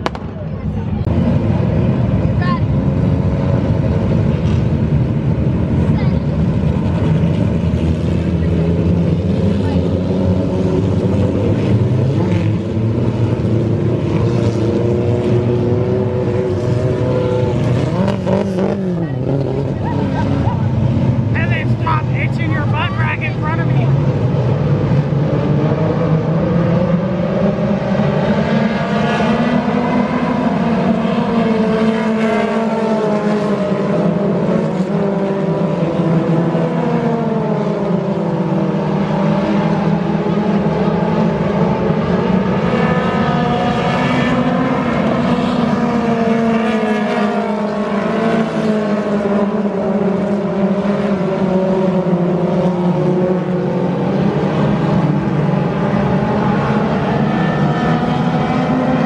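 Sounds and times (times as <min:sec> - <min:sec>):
racing car engines: 0:00.0 - 0:59.0.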